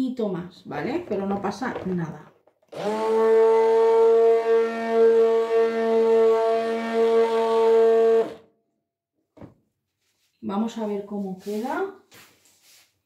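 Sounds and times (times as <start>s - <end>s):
hand blender motor hum: 2.7s - 8.4s.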